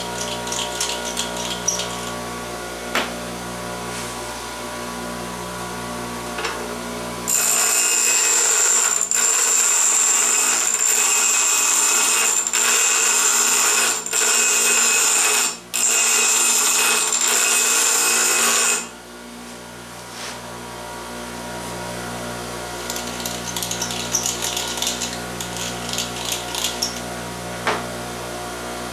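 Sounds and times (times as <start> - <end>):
bench grinder grinding metal pipe: 0.0 - 2.3, 7.3 - 19.0, 22.6 - 27.8
bench grinder humming: 0.0 - 3.4, 6.3 - 19.0, 21.6 - 28.3.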